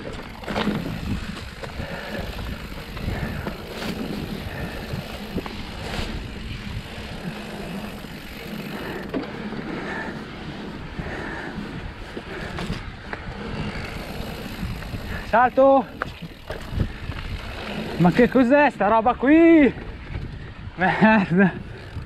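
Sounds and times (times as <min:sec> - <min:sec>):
bike knocking over bumps: 0:00.0 - 0:06.3
bike rattling over rough ground: 0:00.0 - 0:22.0
bike tyre noise on dirt: 0:00.0 - 0:22.0.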